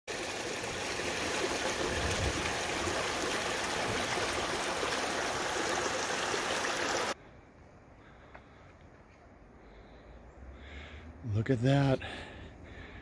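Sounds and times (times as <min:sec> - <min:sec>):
creek running over rocks: 0:00.1 - 0:07.2.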